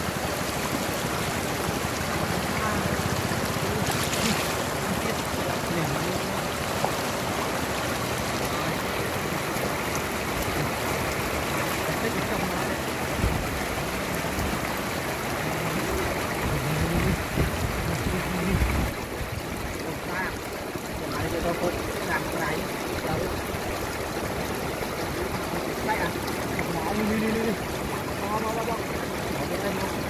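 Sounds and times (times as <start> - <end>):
floodwater rushing and splashing: 0.0 - 30.0
hands splashing in water: 3.7 - 5.0.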